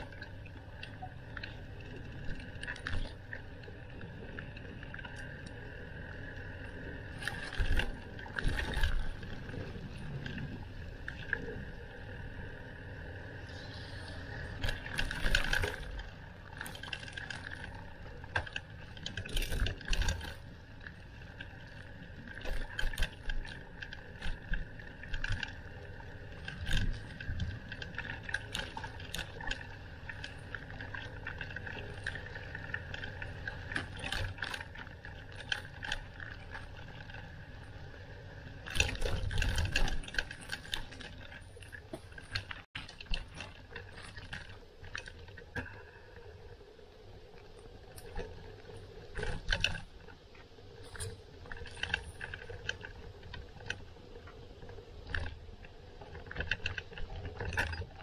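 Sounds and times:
bicycle rattling over bumps: 0:00.0 - 0:46.5, 0:47.1 - 0:58.0.

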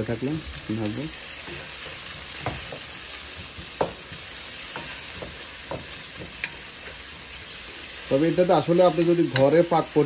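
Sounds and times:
onions sizzling in hot oil: 0:00.0 - 0:10.0
wooden spoon knocking pan: 0:01.4 - 0:07.0.

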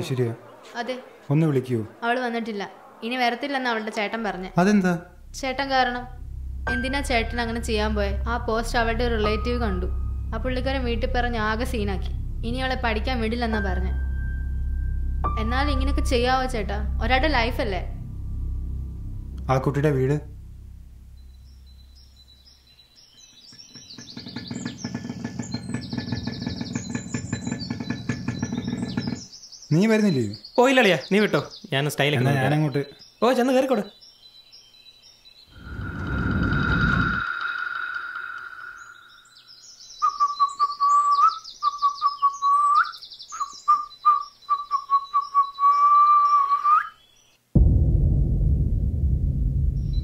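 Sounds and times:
birds chirping: 0:00.0 - 0:47.4
low whistle-like note: 0:05.2 - 0:22.4, 0:47.6 - 0:50.0
motorcycle engine pulsing: 0:23.6 - 0:29.3.

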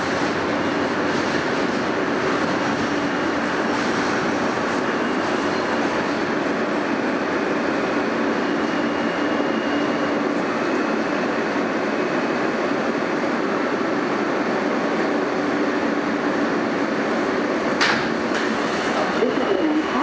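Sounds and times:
subway car running on rails: 0:00.0 - 0:20.0.

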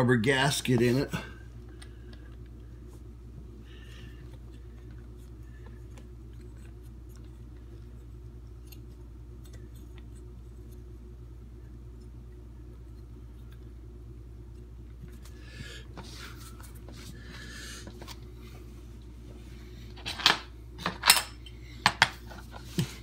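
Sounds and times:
low hum: 0:00.0 - 0:23.0.

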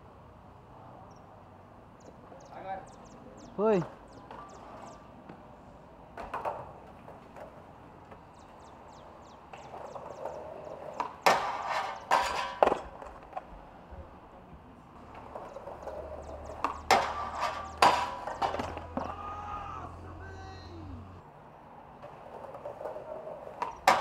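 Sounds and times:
skateboard rolling: 0:03.0 - 0:24.0
skateboard wooden clacks: 0:03.8 - 0:13.7, 0:15.0 - 0:19.2, 0:22.0 - 0:24.0.

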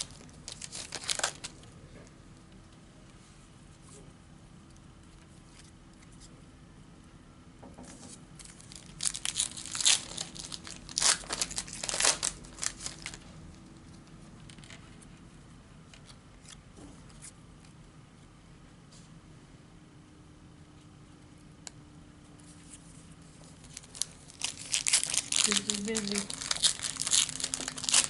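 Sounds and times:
foil wrapper tearing and crinkling: 0:00.0 - 0:01.7, 0:08.4 - 0:13.3, 0:23.6 - 0:28.0.

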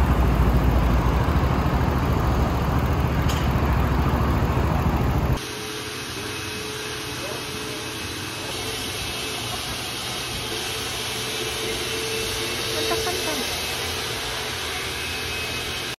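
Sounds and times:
low hum: 0:00.0 - 0:06.9
pressure washer spray hissing: 0:05.4 - 0:15.8.

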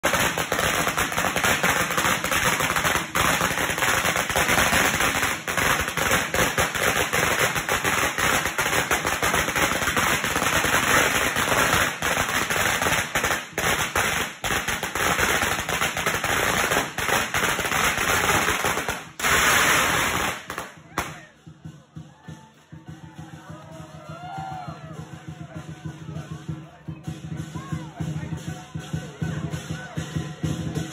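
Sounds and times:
firecrackers rapid bangs: 0:00.0 - 0:21.6.

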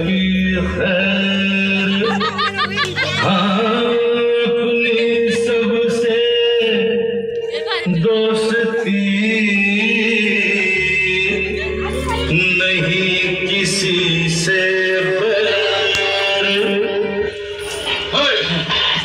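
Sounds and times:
dance song over loudspeakers: 0:13.9 - 0:19.0.

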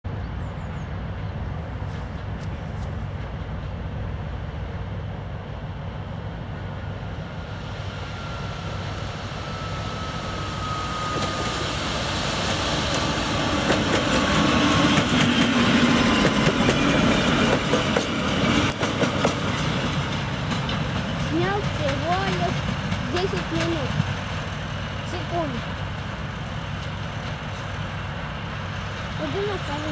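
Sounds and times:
diesel locomotive engine droning: 0:00.1 - 0:29.9
train wheels clicking over rail joints: 0:12.2 - 0:24.7.

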